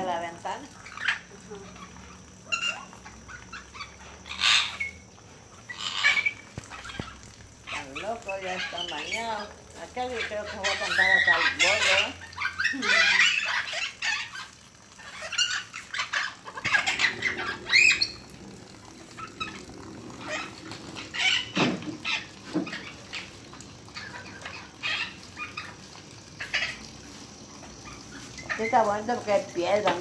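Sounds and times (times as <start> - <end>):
parrot squawking and chattering: 0.8 - 28.8.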